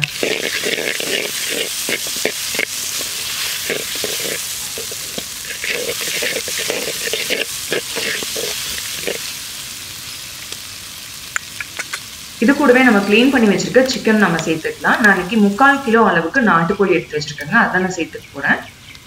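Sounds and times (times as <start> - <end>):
ladle scraping pot: 0.0 - 9.2
food sizzling in oil: 0.0 - 17.7.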